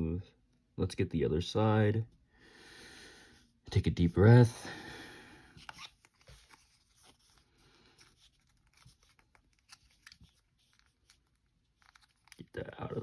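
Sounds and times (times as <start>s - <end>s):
sticker peeling clicks and rustles: 8.0s - 13.0s.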